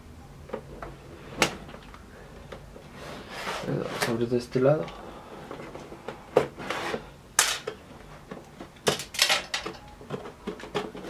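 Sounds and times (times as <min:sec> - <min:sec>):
cardboard box rubbing and scraping: 0:02.9 - 0:04.1.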